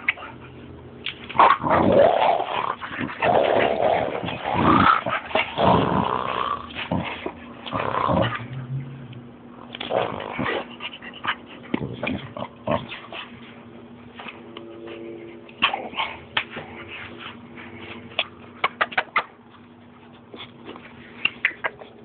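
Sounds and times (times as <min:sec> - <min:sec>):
puppy growling: 0:01.4 - 0:13.4, 0:15.6 - 0:16.9.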